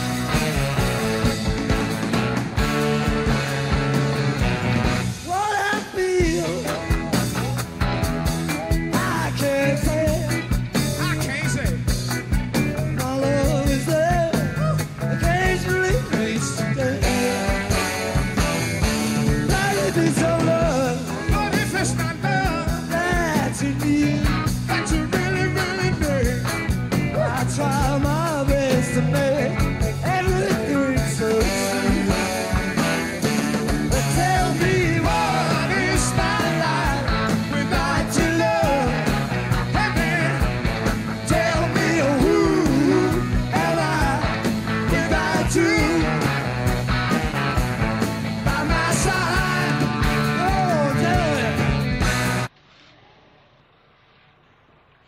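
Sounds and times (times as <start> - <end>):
rock band playing: 0.0 - 52.5
electric guitars: 0.0 - 52.9
man singing: 5.2 - 7.0, 8.9 - 11.9, 12.9 - 18.0, 19.4 - 32.6, 33.9 - 46.5, 48.4 - 51.9.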